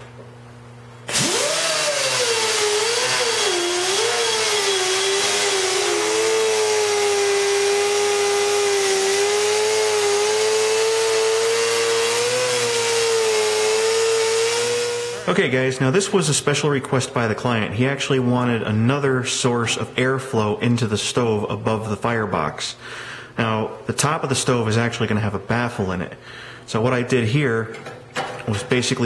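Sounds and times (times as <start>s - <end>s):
die grinder whining on metal: 1.1s - 15.3s.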